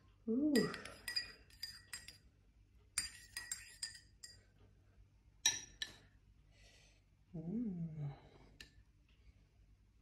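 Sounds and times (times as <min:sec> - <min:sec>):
metal spoon clinking glass: 0:00.6 - 0:02.2, 0:03.0 - 0:04.4.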